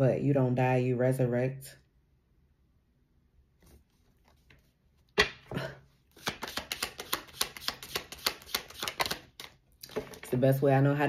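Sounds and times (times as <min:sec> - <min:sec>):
cards slapping: 0:06.1 - 0:10.2.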